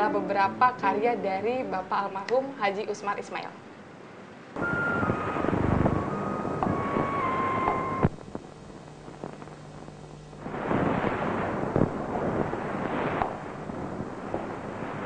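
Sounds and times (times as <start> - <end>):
faint hum: 0.0 - 15.0
held tone: 4.6 - 8.2
rushing noise: 4.6 - 9.5, 10.4 - 15.0.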